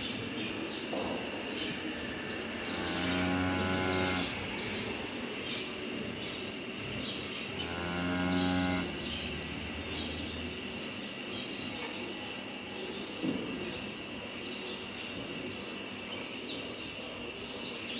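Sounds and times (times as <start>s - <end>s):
cow mooing: 2.7s - 4.5s, 7.6s - 9.0s.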